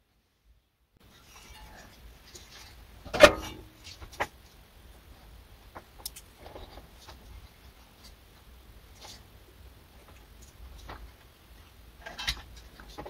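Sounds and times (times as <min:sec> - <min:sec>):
metal clunk with ring: 0:03.1 - 0:03.7.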